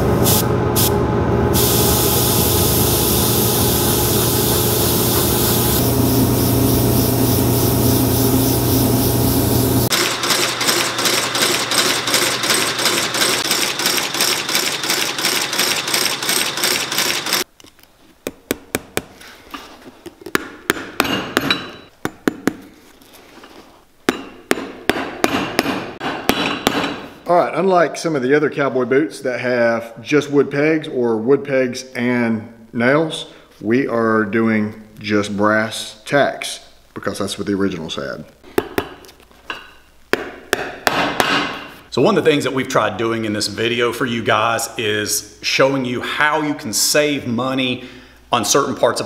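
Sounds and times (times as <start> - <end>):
air compressor humming: 0.0 - 17.5
airbrush hissing: 0.2 - 0.9, 1.6 - 10.0
stitching machine clatter: 9.9 - 17.4.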